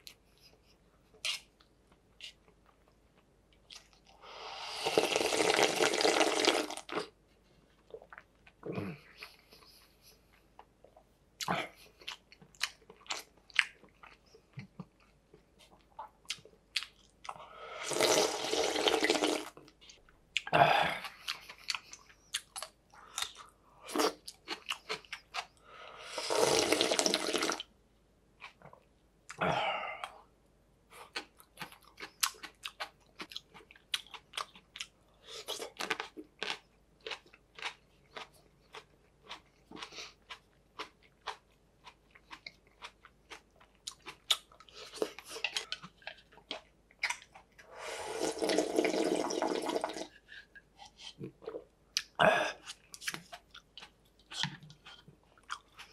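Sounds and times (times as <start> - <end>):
chewing and crunching: 0.0 - 4.2, 6.9 - 17.4, 19.6 - 25.6, 30.9 - 47.7, 50.1 - 55.9
slurping broth: 4.3 - 7.1, 17.7 - 19.6, 26.0 - 27.6, 47.7 - 51.6.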